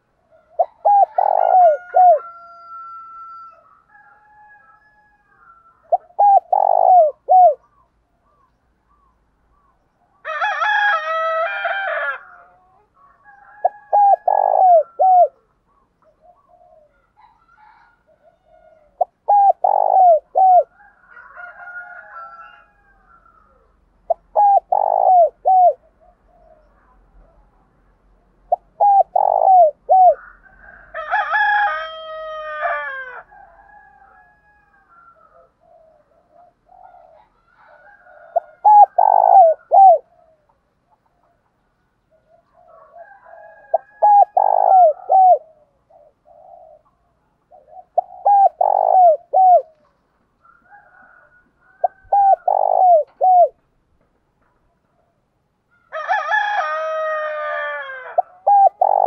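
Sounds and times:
dove cooing: 0.0 - 4.2, 4.9 - 9.8, 11.8 - 27.5, 28.4 - 41.4, 42.1 - 53.6, 57.2 - 59.0
long dove call sinking in pitch: 51.9 - 53.6.

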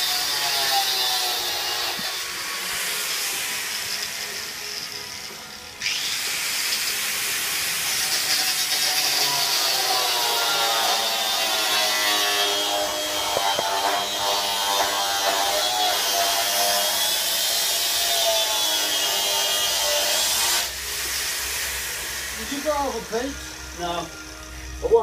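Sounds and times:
angle grinder grinding metal: 0.0 - 25.0.

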